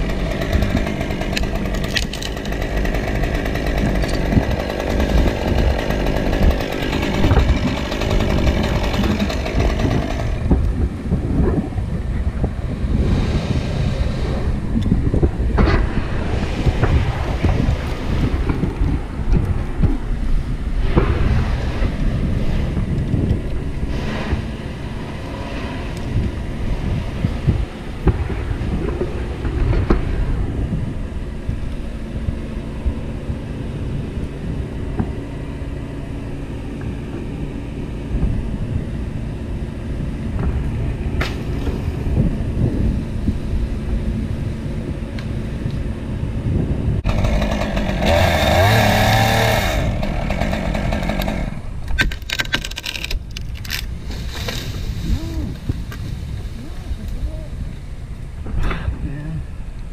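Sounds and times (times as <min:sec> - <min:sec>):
engine running: 0:00.0 - 0:59.9
wind buffeting microphone: 0:00.0 - 0:59.9.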